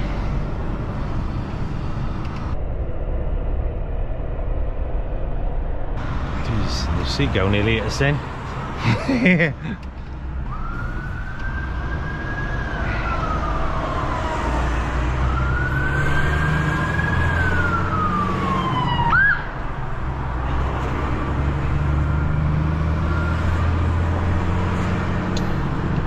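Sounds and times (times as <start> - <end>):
truck engine drone: 0.0 - 26.0
siren chirp: 10.4 - 19.6, 22.1 - 24.0
siren wailing: 10.4 - 19.9, 21.6 - 25.4.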